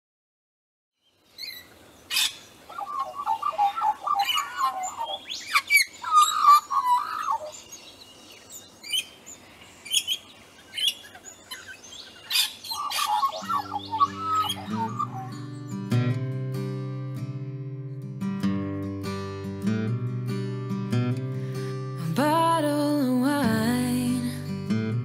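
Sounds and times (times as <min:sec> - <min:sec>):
birds singing: 0:01.0 - 0:16.0
sharp high bird chirps: 0:01.1 - 0:15.9.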